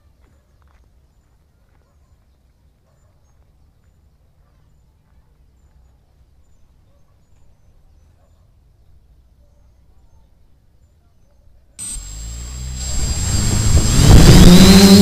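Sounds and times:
wind rumble on microphone: 0:11.8 - 0:15.0.

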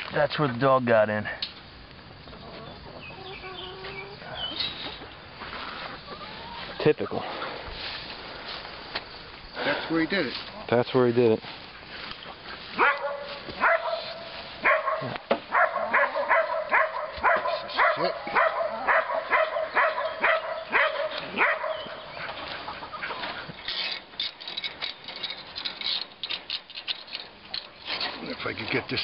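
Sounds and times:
dog barking: 0:12.8 - 0:22.0.

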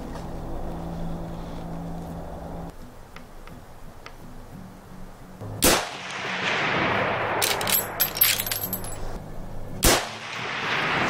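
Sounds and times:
rifle shot with echo: 0:05.6 - 0:08.0, 0:09.8 - 0:11.0
rifle action metallic clicks: 0:07.4 - 0:09.0.

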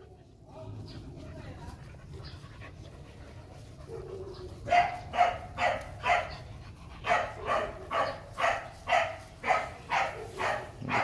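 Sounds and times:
puppy barking: 0:03.9 - 0:11.0.

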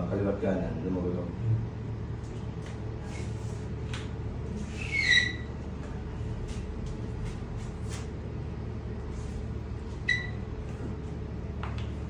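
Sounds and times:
air conditioner humming: 0:00.0 - 0:12.0
brief high-pitched squeak: 0:04.7 - 0:05.5, 0:10.1 - 0:10.4.

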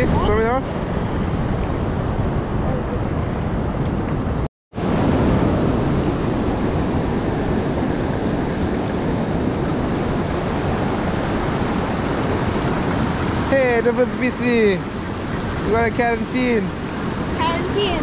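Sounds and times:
waves breaking over rocks: 0:04.8 - 0:18.0.

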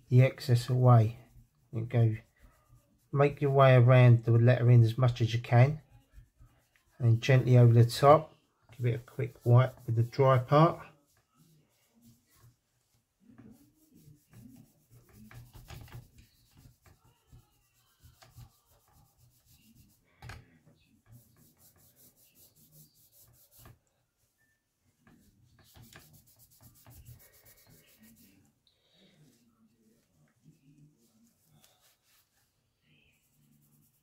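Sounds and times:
cloth rubbing: 0:00.0 - 0:20.2, 0:20.9 - 0:23.9, 0:24.5 - 0:28.5, 0:29.1 - 0:34.0.

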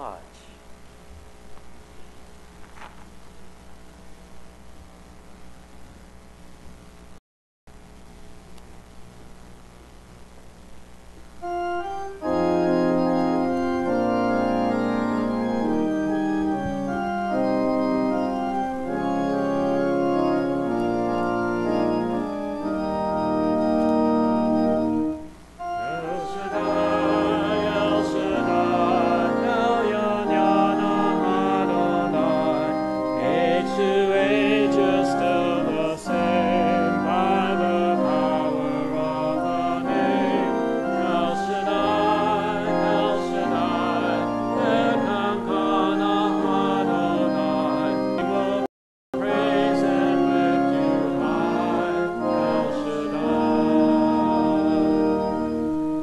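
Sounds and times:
organ playing hymn chords: 0:00.0 - 0:00.2, 0:11.3 - 0:56.0
congregation singing a hymn: 0:11.4 - 0:55.8.

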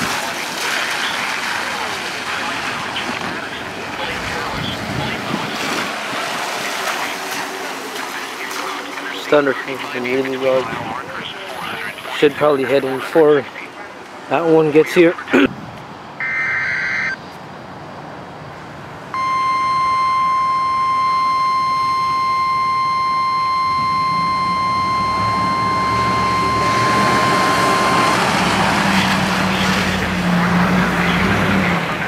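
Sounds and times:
rushing noise with low hum: 0:01.8 - 0:07.4
high warning beep: 0:16.2 - 0:17.2, 0:19.2 - 0:29.7.

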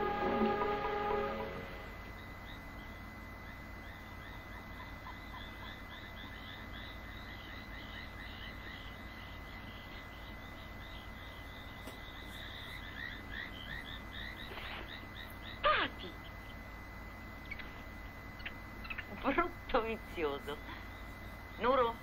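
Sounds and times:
rapid chirping calls: 0:17.4 - 0:19.4.

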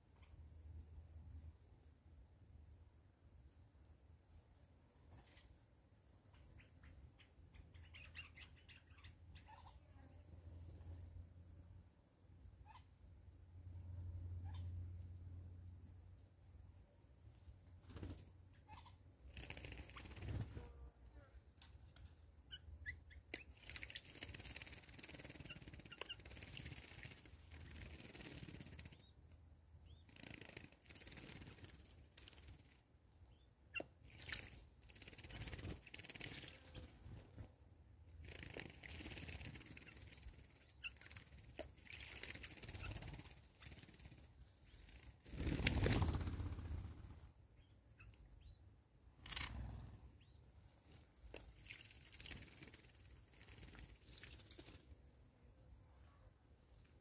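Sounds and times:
wing flutters: 0:17.4 - 0:20.9, 0:23.3 - 0:29.3, 0:29.9 - 0:32.8, 0:33.8 - 0:47.4, 0:49.2 - 0:55.0
short high bird chirps: 0:49.2 - 0:50.4.

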